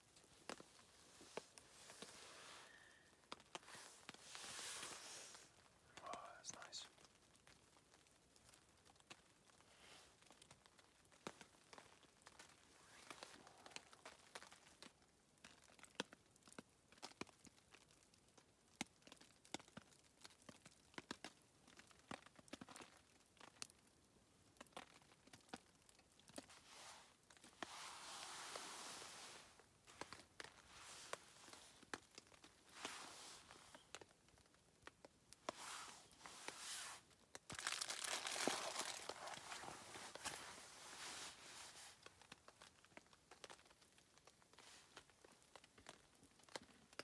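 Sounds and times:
soft rustle: 0.0s - 15.8s, 24.7s - 47.0s
faint small ticks and crackles: 0.0s - 47.0s.

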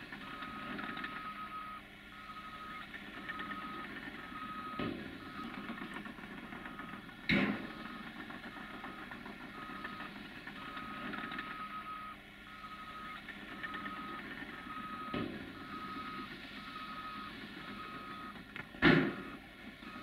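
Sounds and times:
diesel earthmoving machines running: 0.0s - 20.0s
reversing alarm beeping: 0.2s - 5.9s, 7.6s - 18.4s, 19.0s - 20.0s
thump: 18.8s - 19.3s.

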